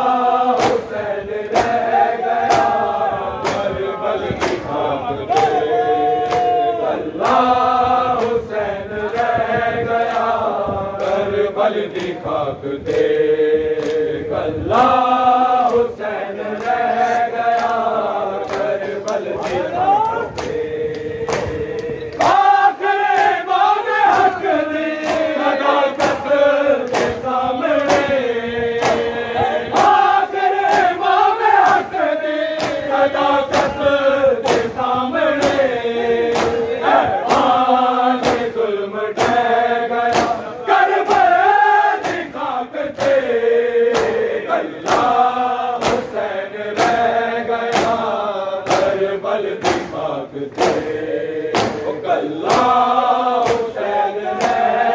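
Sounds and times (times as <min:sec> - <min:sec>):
men chanting in unison: 0:00.0 - 0:54.9
hands slapping chests: 0:00.5 - 0:03.8, 0:04.4 - 0:07.5, 0:13.8 - 0:14.1, 0:17.5 - 0:28.2, 0:28.8 - 0:32.0, 0:32.6 - 0:32.9, 0:33.5 - 0:34.8, 0:35.4 - 0:38.6, 0:39.2 - 0:39.5, 0:40.1 - 0:40.5, 0:43.0 - 0:45.2, 0:45.8 - 0:46.2, 0:46.8 - 0:49.0, 0:49.6 - 0:52.8, 0:53.4 - 0:54.8.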